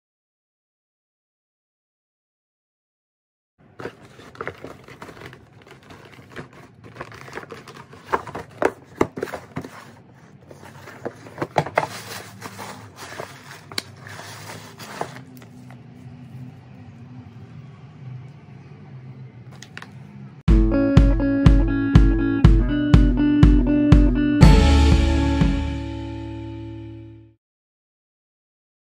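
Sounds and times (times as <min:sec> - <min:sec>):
tissue paper crinkling: 0:03.7 - 0:15.8
cardboard box clicks and knocks: 0:03.8 - 0:15.4.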